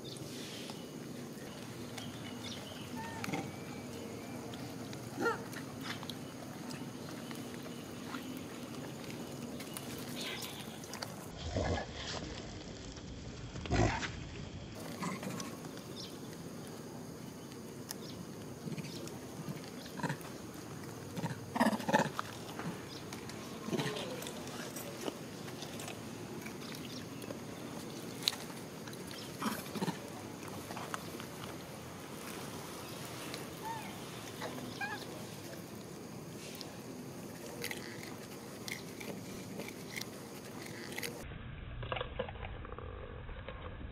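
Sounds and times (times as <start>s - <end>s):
steady background noise: 0.0s - 41.4s
macaques chirping and squeaking: 33.6s - 35.4s.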